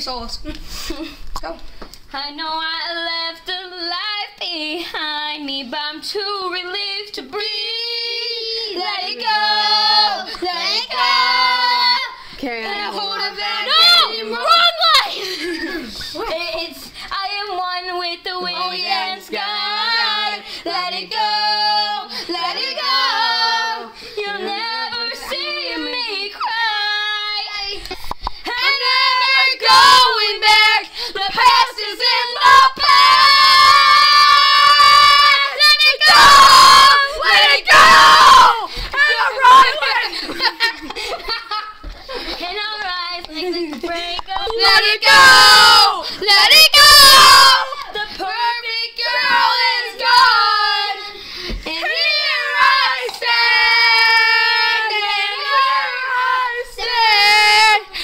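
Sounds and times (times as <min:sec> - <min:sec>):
girl singing loudly: 0:07.4 - 0:15.2, 0:28.5 - 0:40.1, 0:42.4 - 0:51.0, 0:51.6 - 0:57.9.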